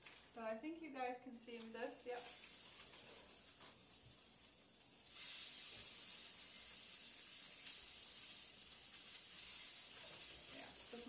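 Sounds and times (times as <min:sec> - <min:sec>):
chicken sizzling in a grill pan: 0:01.9 - 0:11.0.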